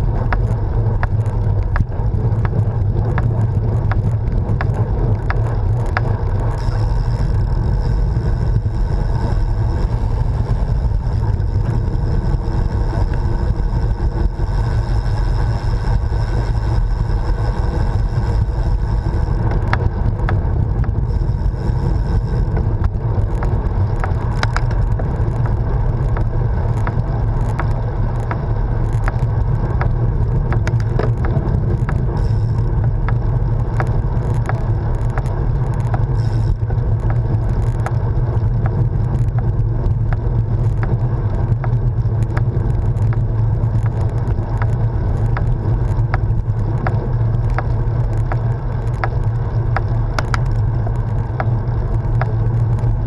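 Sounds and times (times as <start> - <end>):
small clicks and rattles: 0.0 - 53.0
tyre noise on tarmac: 0.0 - 53.0
wind buffeting microphone: 0.0 - 53.0.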